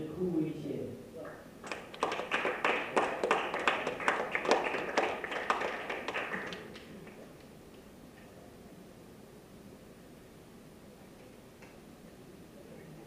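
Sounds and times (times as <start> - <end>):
audience applauding: 1.2 - 7.5.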